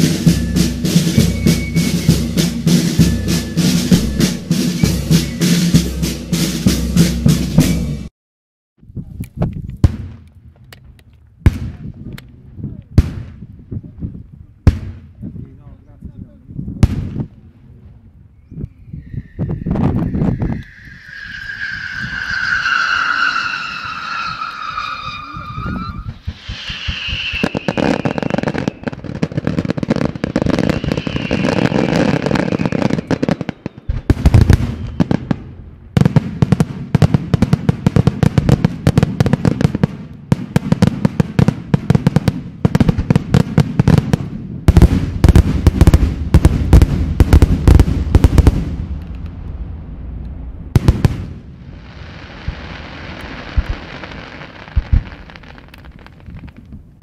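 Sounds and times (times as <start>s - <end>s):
falling firework whistle: 0.0s - 6.0s, 7.6s - 8.1s, 18.4s - 35.4s
fireworks crackling and banging: 0.0s - 8.1s, 9.0s - 15.7s, 19.4s - 57.0s.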